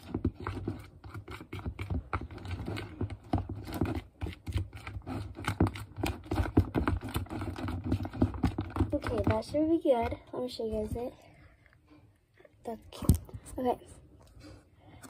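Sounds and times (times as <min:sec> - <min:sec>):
utensil scraping plastic bowl: 0:00.0 - 0:11.1.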